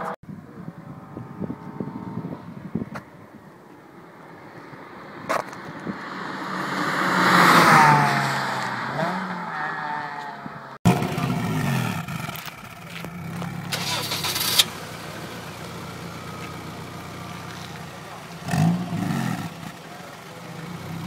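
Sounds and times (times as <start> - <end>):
car engine at exhaust: 0.0 - 21.0
car driving fast past: 6.1 - 10.6.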